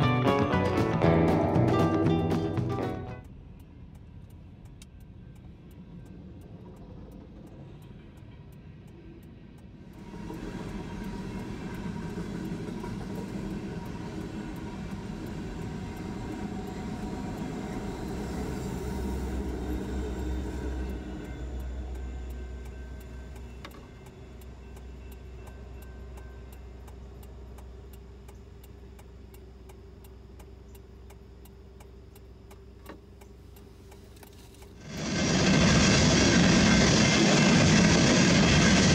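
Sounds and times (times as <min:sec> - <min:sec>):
train wheels rumbling on rails: 0:00.0 - 0:29.0, 0:34.4 - 0:38.9
crossing signal bell ringing: 0:13.2 - 0:27.6
deep low hum: 0:34.8 - 0:38.9.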